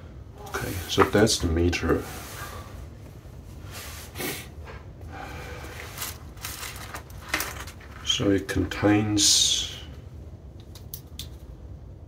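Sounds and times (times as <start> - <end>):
low steady hum: 0.0 - 12.0
carrying case rustling: 5.9 - 8.1.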